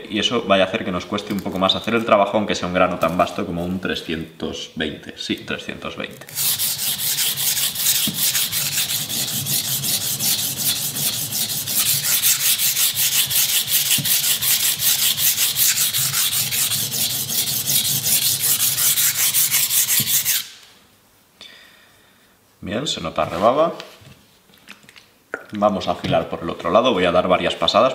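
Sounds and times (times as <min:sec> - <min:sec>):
knife scraping on whetstone: 0:06.3 - 0:20.5.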